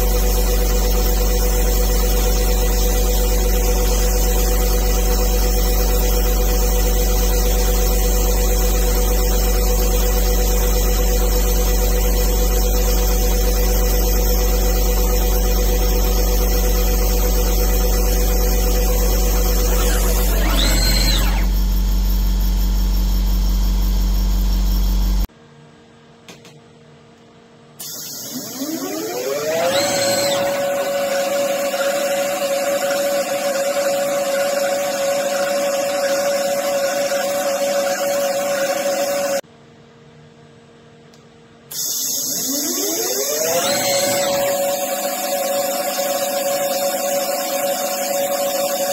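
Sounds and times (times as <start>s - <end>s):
lathe spindle motor whine: 0.0s - 25.2s, 27.8s - 39.4s, 41.7s - 48.9s
metal cutting noise: 15.6s - 22.1s, 27.8s - 39.4s, 41.8s - 46.9s.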